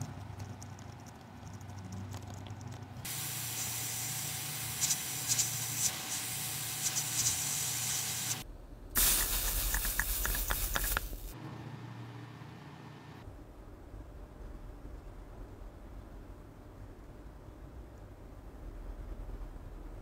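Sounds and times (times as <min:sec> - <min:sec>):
solder hissing and crackling: 0:03.0 - 0:08.4, 0:09.0 - 0:11.4.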